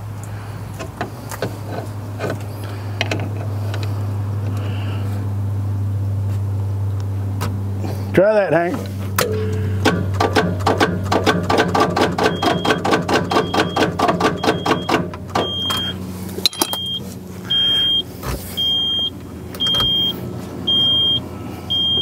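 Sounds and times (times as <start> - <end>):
diesel engine cranking: 0.0 - 22.0
high warning beep: 12.2 - 16.0, 16.6 - 22.0.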